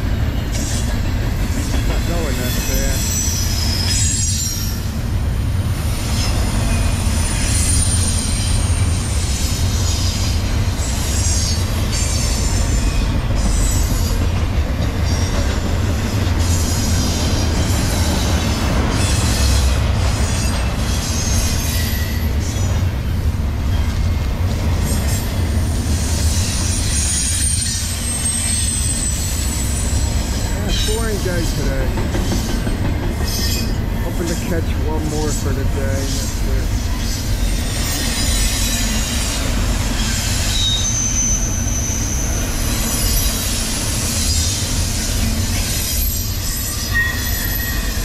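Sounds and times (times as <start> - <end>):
train wheels rumbling on rail: 0.0 - 48.0
high-pitched wheel squeal: 2.1 - 4.9, 19.0 - 22.7, 26.4 - 31.0, 36.9 - 44.7, 45.6 - 48.0.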